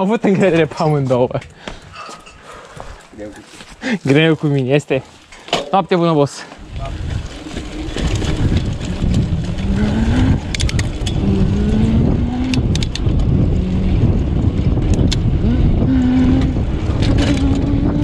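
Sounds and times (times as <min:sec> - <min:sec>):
bicycle clicks and rattles: 0:05.2 - 0:15.6, 0:16.4 - 0:18.0
wind rushing over microphone: 0:06.6 - 0:18.0
person humming low notes: 0:08.2 - 0:18.0.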